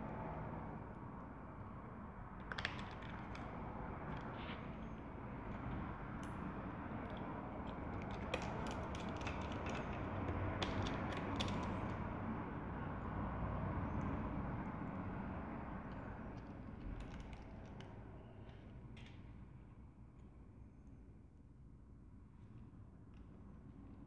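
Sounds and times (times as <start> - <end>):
screwdriver clicking on tiny screws: 7.0 - 12.0, 15.9 - 17.9.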